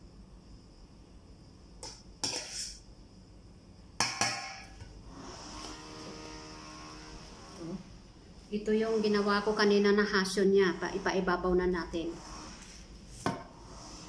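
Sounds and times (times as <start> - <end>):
metal spoon scraping a pot: 1.8 - 2.8.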